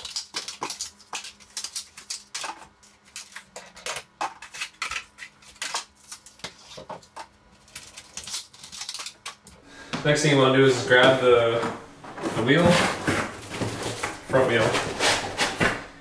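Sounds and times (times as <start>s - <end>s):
cardboard being handled: 10.6s - 16.0s.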